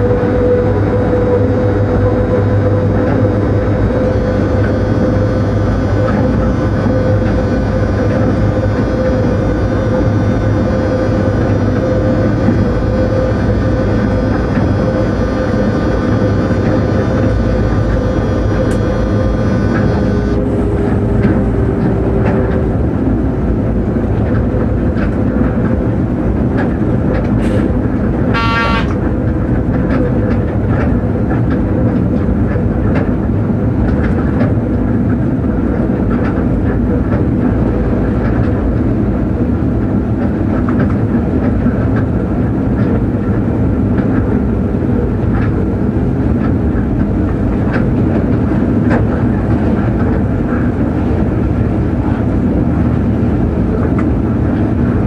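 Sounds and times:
train running noise: 0:00.0 - 0:55.0
short high-pitched tone: 0:03.9 - 0:20.4, 0:28.3 - 0:29.0.

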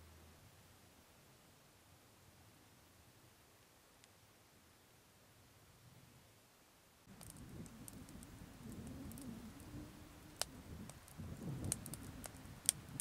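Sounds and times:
wood fire crackling: 0:07.0 - 0:13.0
low rumble of flames: 0:07.1 - 0:13.0
sharp pops and snaps: 0:07.1 - 0:13.0.

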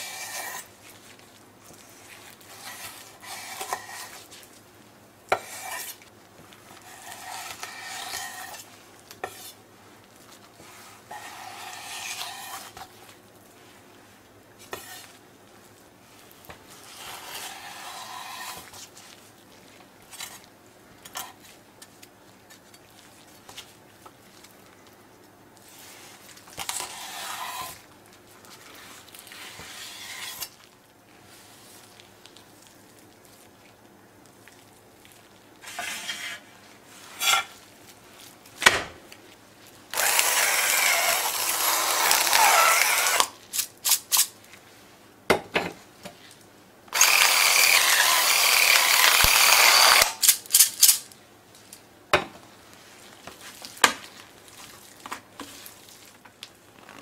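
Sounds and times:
electric spice mill grinding: 0:40.0 - 0:43.3, 0:47.0 - 0:50.3.

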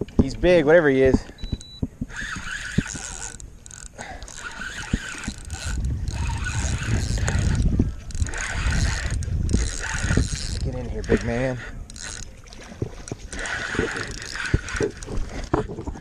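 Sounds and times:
fishing reel whirring and clicking: 0:01.4 - 0:16.0
wind rumbling on microphone: 0:04.2 - 0:16.0.

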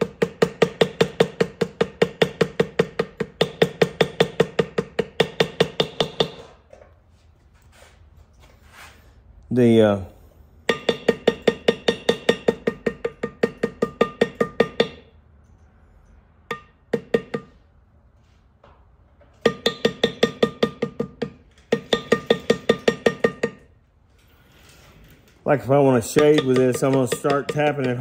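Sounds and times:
mallet tapping leather tool: 0:00.0 - 0:06.4, 0:10.7 - 0:15.1, 0:16.5 - 0:17.6, 0:19.4 - 0:23.6, 0:25.9 - 0:28.0.

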